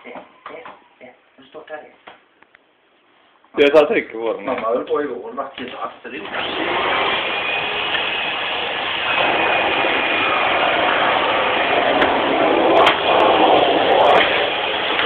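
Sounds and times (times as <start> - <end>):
vacuum cleaner running: 6.2 - 15.0.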